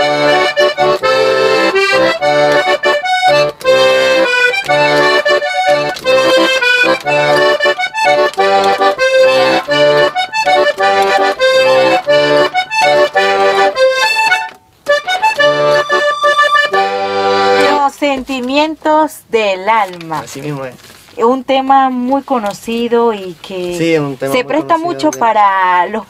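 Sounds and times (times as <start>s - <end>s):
button accordion melody: 0.0s - 18.2s.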